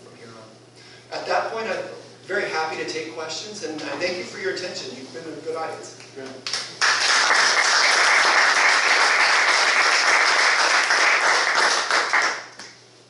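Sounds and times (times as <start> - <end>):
audience applauding: 6.5 - 12.6.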